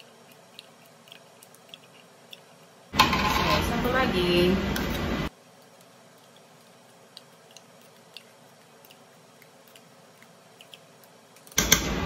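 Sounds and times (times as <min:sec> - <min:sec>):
metal spoon scraping tin can: 0:03.0 - 0:03.8.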